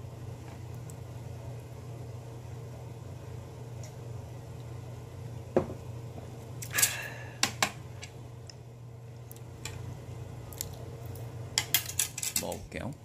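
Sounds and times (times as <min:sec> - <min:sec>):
soft knock: 0:05.6 - 0:05.8.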